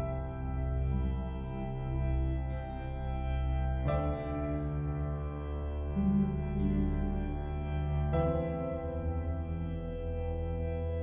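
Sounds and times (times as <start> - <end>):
slow ambient music chords: 0.0 - 11.0.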